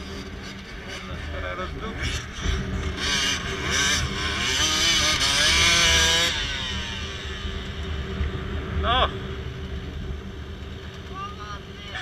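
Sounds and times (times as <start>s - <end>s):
dirt bike engine revving: 0.0s - 9.3s.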